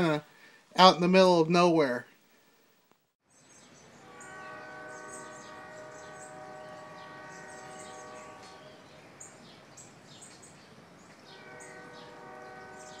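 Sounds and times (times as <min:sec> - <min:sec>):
small birds chirping: 0:03.2 - 0:13.0
steady chord of held tones: 0:03.8 - 0:09.1.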